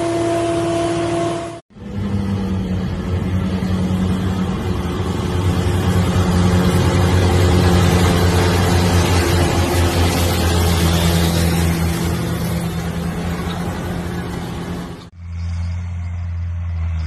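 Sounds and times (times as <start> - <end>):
diesel mower engine running: 0.0 - 17.0.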